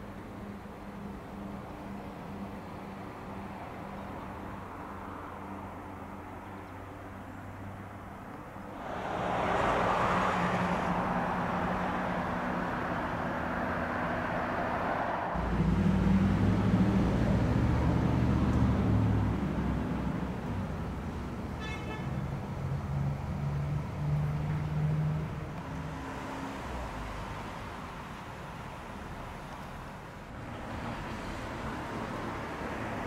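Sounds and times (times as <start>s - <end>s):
passing vehicle noise: 0.0s - 33.0s
deep engine hum: 15.4s - 20.8s.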